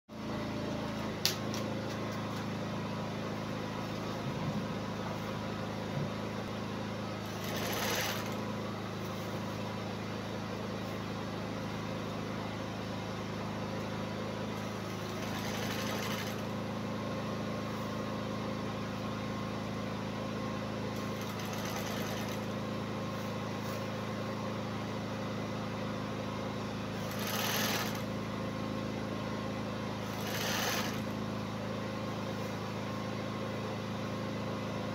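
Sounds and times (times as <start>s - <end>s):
sewing machine running: 7.2s - 8.6s, 14.6s - 16.6s, 20.9s - 22.6s, 26.9s - 28.2s, 30.0s - 31.2s.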